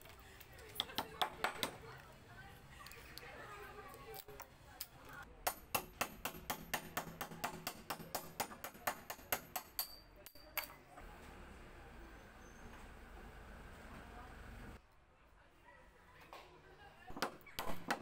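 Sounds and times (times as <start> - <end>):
hammer striking a nail in wood: 5.5 - 10.0.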